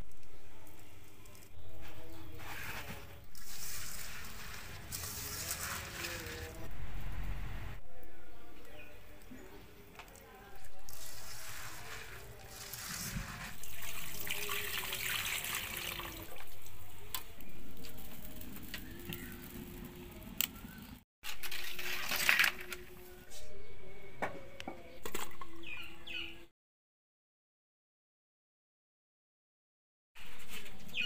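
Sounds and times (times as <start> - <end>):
water pouring into a metal wok: 10.9 - 16.8, 21.3 - 22.6.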